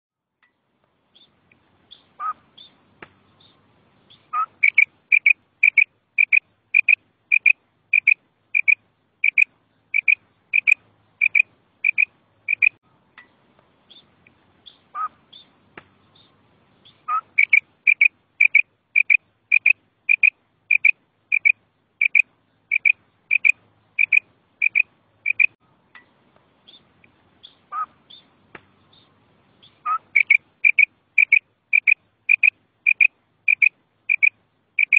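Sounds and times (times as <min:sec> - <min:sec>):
quail calling: 0:01.9 - 0:02.8, 0:04.1 - 0:12.8, 0:14.6 - 0:15.5, 0:16.8 - 0:25.6, 0:27.4 - 0:28.3, 0:29.0 - 0:34.9.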